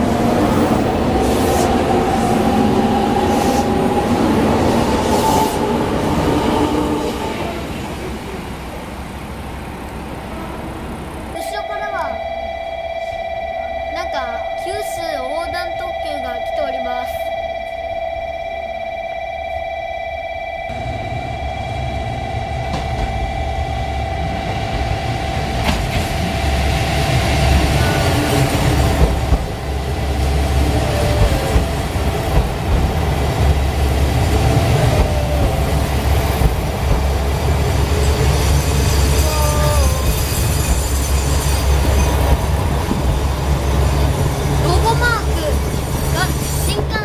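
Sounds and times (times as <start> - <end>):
diesel train low rumble: 0.0 - 47.0
wheel and brake squeals: 34.2 - 47.0.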